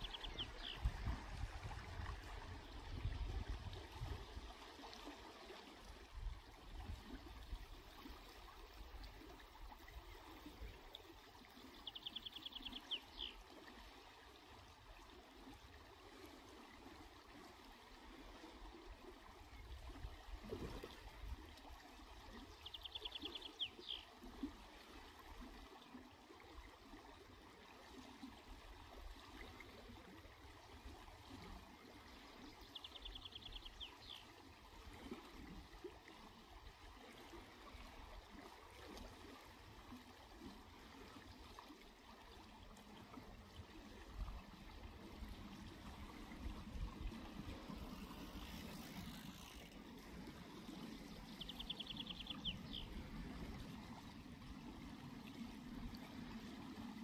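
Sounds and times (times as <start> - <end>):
distant songbird singing: 0.0 - 0.9, 11.8 - 13.4, 22.6 - 24.0, 51.1 - 53.0.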